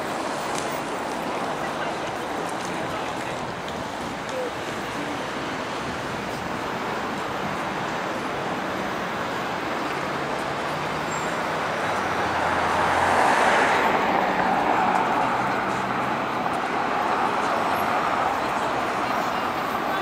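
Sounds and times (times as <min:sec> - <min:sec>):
vehicle passing: 0:08.1 - 0:20.0.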